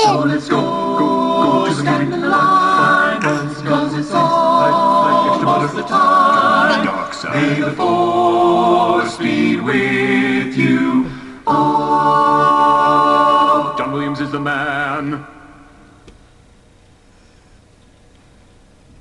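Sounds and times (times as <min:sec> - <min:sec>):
men singing a cappella: 0:00.0 - 0:15.3.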